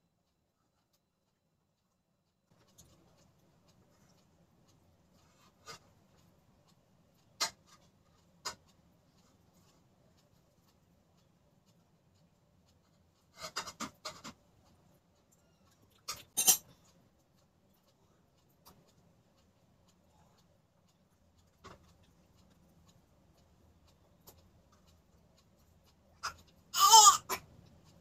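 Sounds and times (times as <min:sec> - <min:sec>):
spoon clinking on plate: 0:16.4 - 0:16.6.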